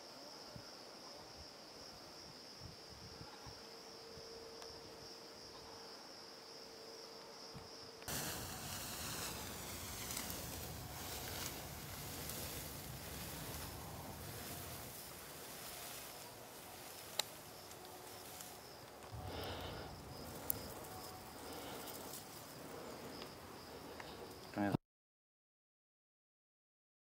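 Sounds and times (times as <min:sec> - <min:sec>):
insects buzzing: 0:00.0 - 0:24.7
wheat stalks rustling against walker: 0:08.1 - 0:22.6.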